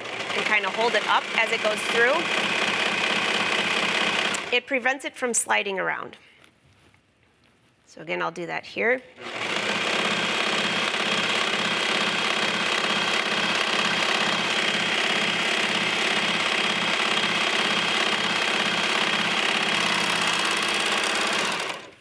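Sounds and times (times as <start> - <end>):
serger sewing machine stitching: 0.0 - 4.6, 9.2 - 22.0.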